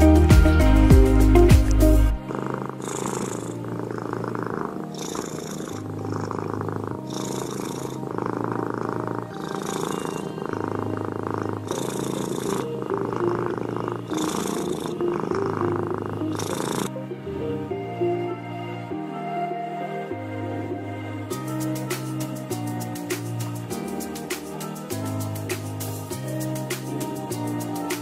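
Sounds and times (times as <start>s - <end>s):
cat purring: 1.4s - 17.4s.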